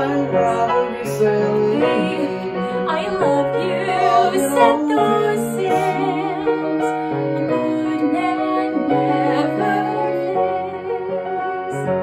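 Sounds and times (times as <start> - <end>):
piano accompaniment: 0.0 - 12.0
woman singing with vibrato: 0.0 - 12.0.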